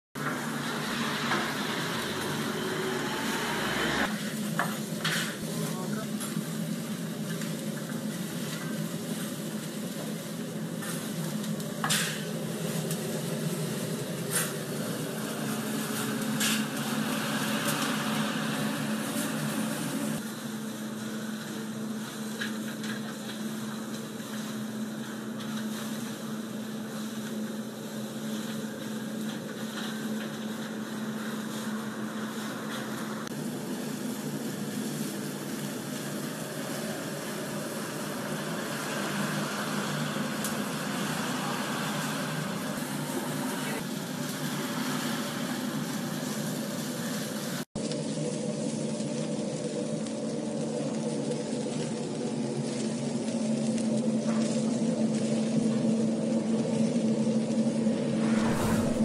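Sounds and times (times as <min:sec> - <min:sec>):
fat sizzling over charcoal: 0:00.2 - 0:59.0
low hum: 0:57.7 - 0:59.0.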